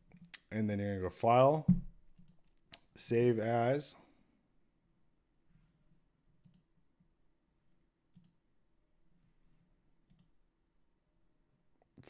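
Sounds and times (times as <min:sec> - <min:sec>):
faint computer mouse clicks: 0:06.4 - 0:06.7, 0:08.1 - 0:08.4, 0:10.1 - 0:10.3.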